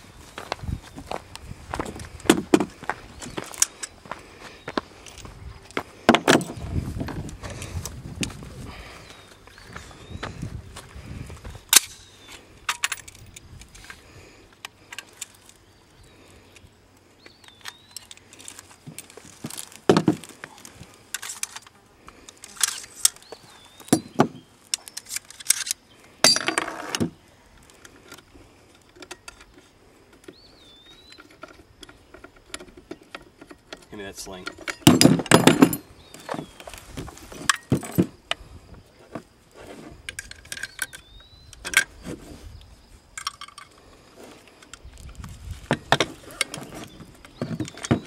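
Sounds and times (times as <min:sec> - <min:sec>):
rifle parts clicking and rattling: 0:01.8 - 0:04.0, 0:11.6 - 0:15.7, 0:16.5 - 0:38.4, 0:39.9 - 0:42.1, 0:43.1 - 0:48.0.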